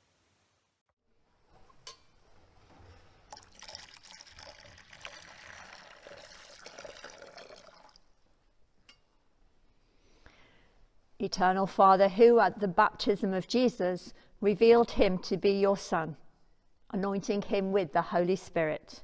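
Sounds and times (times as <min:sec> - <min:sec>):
water pouring into a bowl: 0:03.3 - 0:08.1.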